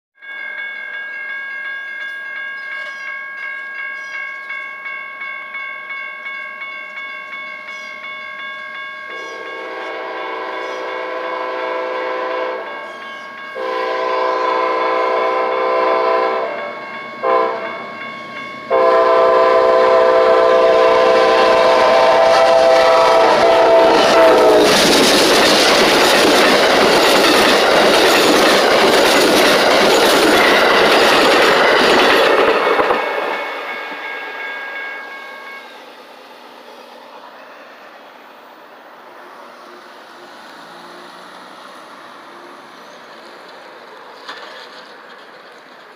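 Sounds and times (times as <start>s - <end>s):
crossing bell ringing: 0.2s - 45.9s
train passing with wheel clatter: 0.2s - 45.9s
train horn blowing: 9.1s - 17.8s, 18.7s - 24.8s.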